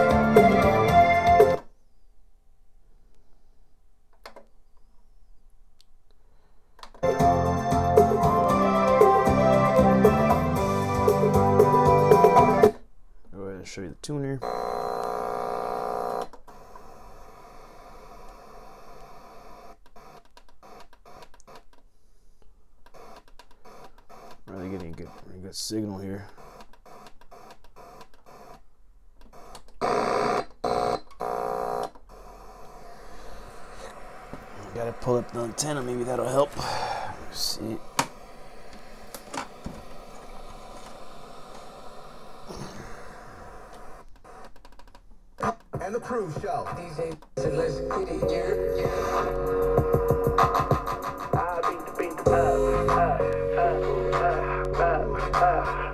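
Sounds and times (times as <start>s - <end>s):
radio static hiss: 14.4s - 20.8s, 23.0s - 26.6s, 31.2s - 44.5s.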